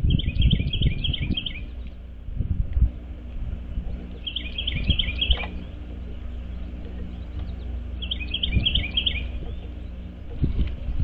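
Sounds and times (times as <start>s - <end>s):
songbird trilling: 0.0s - 2.1s, 3.7s - 10.4s.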